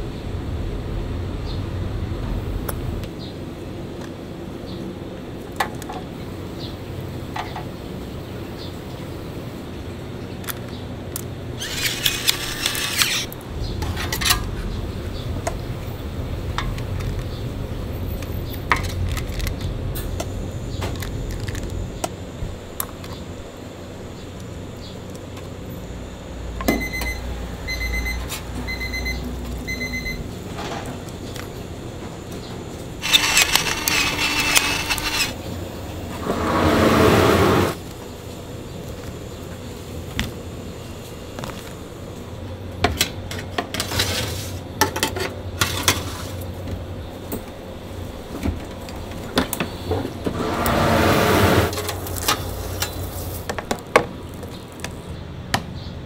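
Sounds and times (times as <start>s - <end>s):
kitchen equipment humming: 11.4s - 25.2s, 32.6s - 42.4s
electronic appliance beeping: 26.7s - 30.3s, 33.0s - 35.4s.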